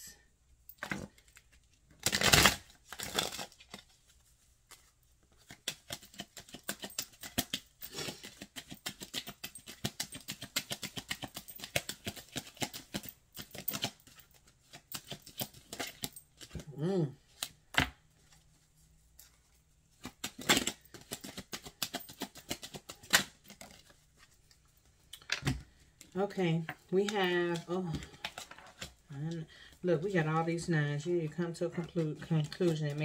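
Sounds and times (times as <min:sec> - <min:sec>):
cards swishing: 0:04.7 - 0:16.6, 0:19.2 - 0:24.6.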